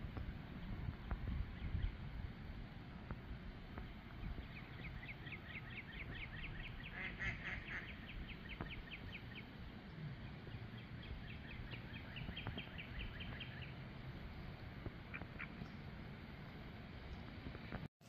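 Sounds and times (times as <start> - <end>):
ducks quacking softly: 6.7 - 8.2, 15.1 - 15.6.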